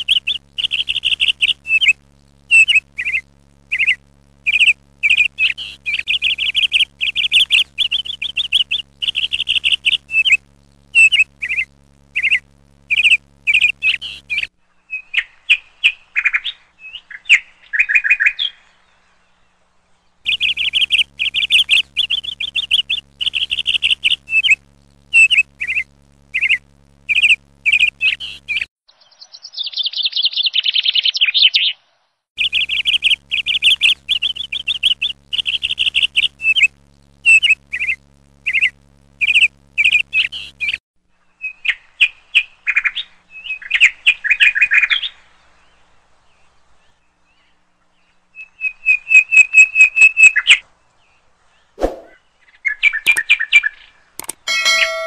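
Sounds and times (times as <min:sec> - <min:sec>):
faint low hum: 0:00.0 - 0:17.7, 0:18.6 - 0:28.7, 0:32.4 - 0:41.5.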